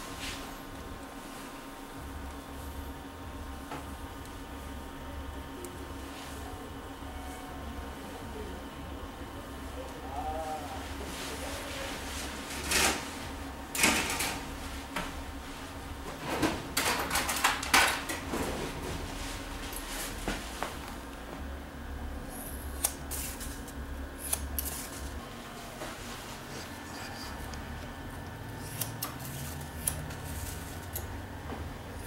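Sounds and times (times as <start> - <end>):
steady low hum: 0.0 - 32.0
tools and hair rustling: 22.4 - 31.2.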